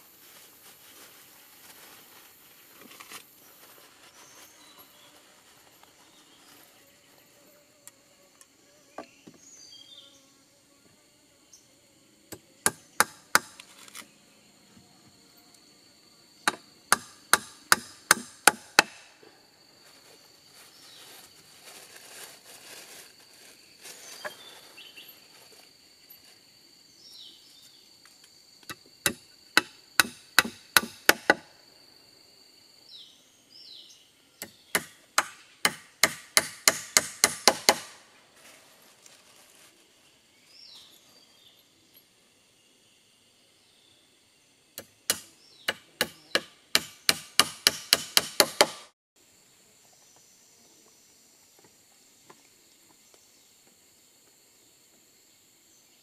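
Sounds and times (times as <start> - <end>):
high insect drone: 0.0 - 56.0
hand tool striking wood: 12.3 - 14.1, 16.4 - 19.2, 28.6 - 31.5, 34.4 - 38.0, 44.8 - 48.9.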